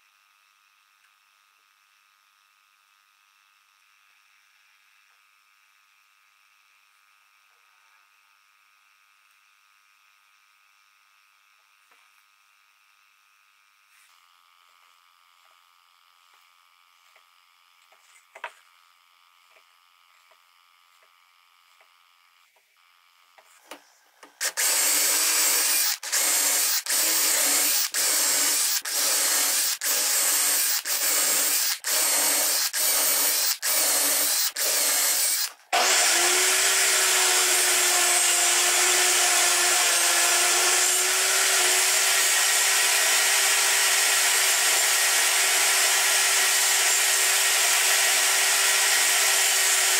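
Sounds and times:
table saw running: 24.3s - 49.9s
power drill boring into wood: 24.4s - 49.9s.

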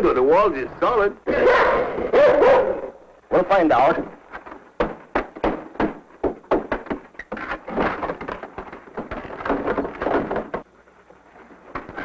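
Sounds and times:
knocking on wooden wall: 4.4s - 10.6s.

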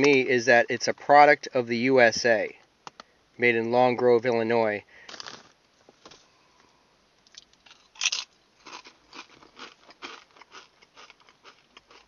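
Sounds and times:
chip crunching: 5.0s - 6.2s, 7.2s - 12.0s.

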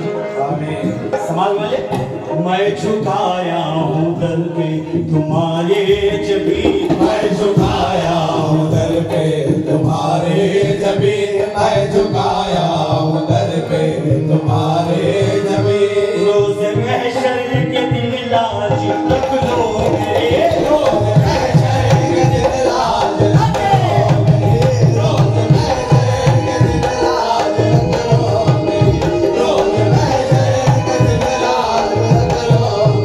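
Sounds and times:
amplified singer chanting: 0.0s - 33.0s
hand drums: 0.0s - 33.0s
harmonium: 0.0s - 33.0s.

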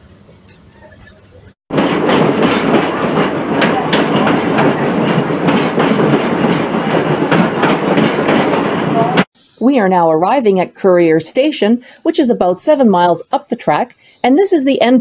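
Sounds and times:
train running noise: 0.0s - 9.3s
wheels clicking over rail joints: 1.7s - 9.2s.

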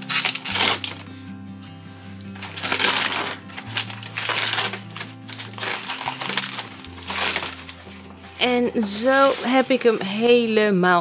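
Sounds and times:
plastic packaging crinkling: 0.0s - 1.1s, 2.4s - 10.6s
background music with bass line: 0.0s - 10.4s.

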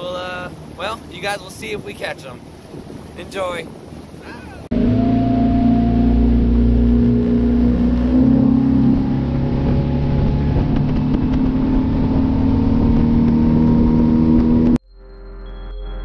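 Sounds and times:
motorboat engine: 0.0s - 14.8s
wind and water rushing: 0.0s - 14.8s
music: 14.8s - 16.0s.

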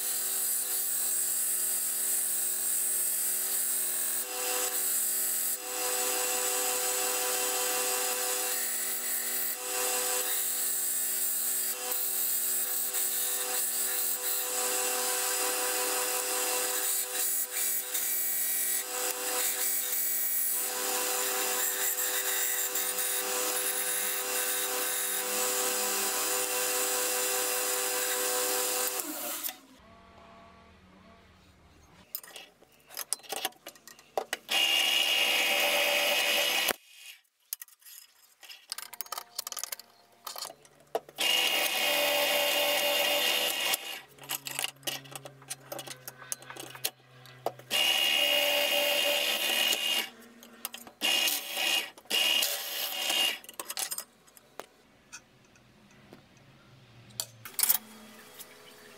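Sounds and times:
power tool running: 0.0s - 30.2s, 34.5s - 36.8s, 41.2s - 50.2s, 51.0s - 53.4s.

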